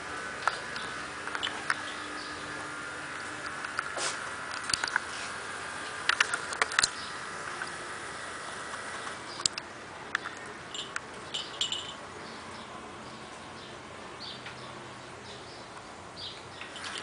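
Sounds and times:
sharp clicks: 0:04.5 - 0:05.1, 0:06.0 - 0:07.7, 0:08.7 - 0:11.6.

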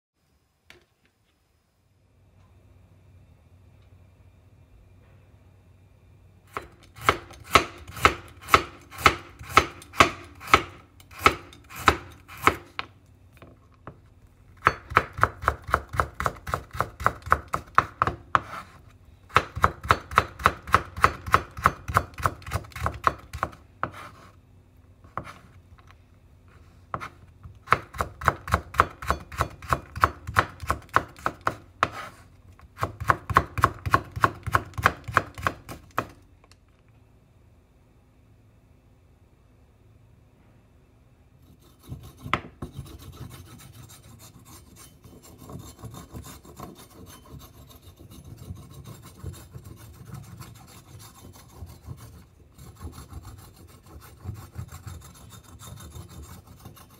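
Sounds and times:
knife chopping on wooden board: 0:06.5 - 0:12.9, 0:14.6 - 0:24.2, 0:25.1 - 0:25.4, 0:26.9 - 0:36.2, 0:41.8 - 0:43.6.

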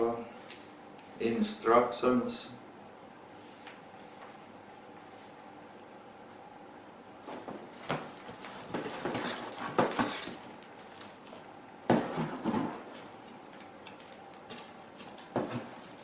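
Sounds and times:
packaging rustling: 0:07.3 - 0:16.0.

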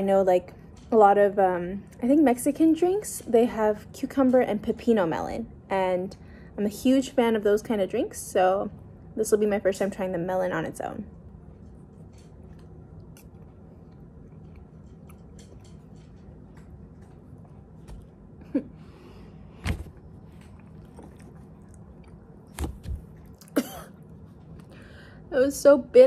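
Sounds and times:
person chewing wet mouth sounds: 0:12.4 - 0:17.8, 0:20.4 - 0:22.5.

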